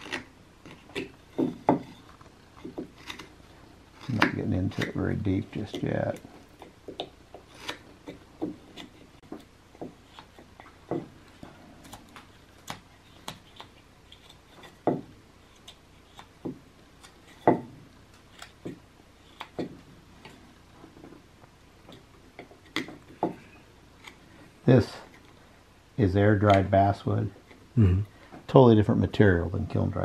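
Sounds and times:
knife cutting wood: 0.0s - 21.0s.

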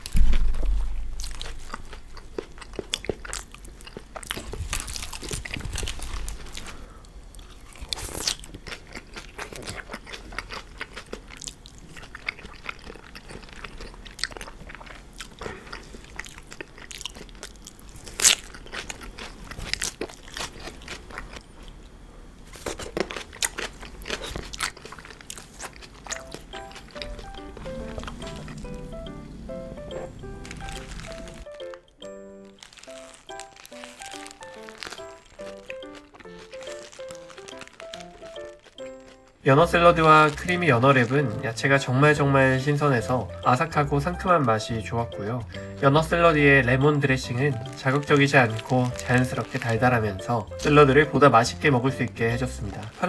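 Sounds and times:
low thump: 0.0s - 1.7s
crunchy chewing: 0.0s - 53.0s.

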